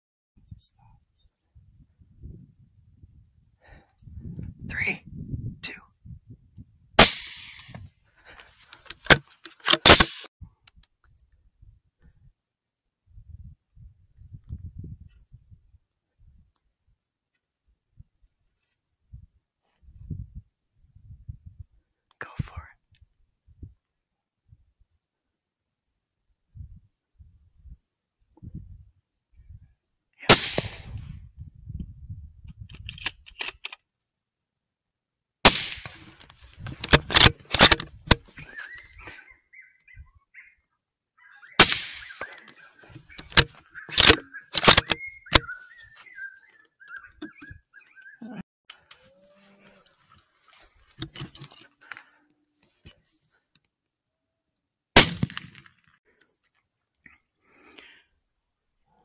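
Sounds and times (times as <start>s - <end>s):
rifle shots: 7.0s - 7.7s, 9.7s - 10.3s, 30.3s - 30.9s, 35.5s - 36.0s, 36.9s - 37.8s, 41.6s - 42.3s, 55.0s - 55.6s.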